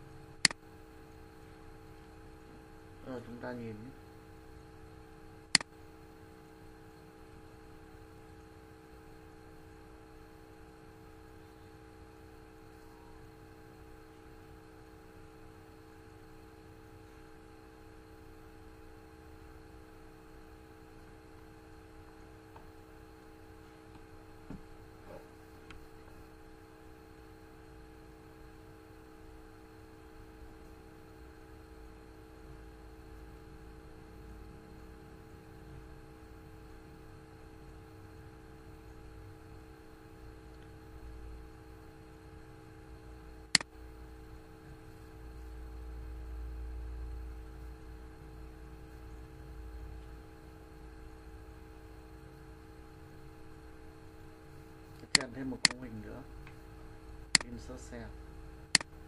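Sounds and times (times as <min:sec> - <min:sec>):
steady electrical hum: 0:00.0 - 0:59.0
sharp click: 0:05.5 - 0:05.7, 0:43.5 - 0:43.7, 0:55.0 - 0:55.9, 0:57.3 - 0:57.6, 0:58.7 - 0:58.9
faint clicks: 0:57.4 - 0:57.6.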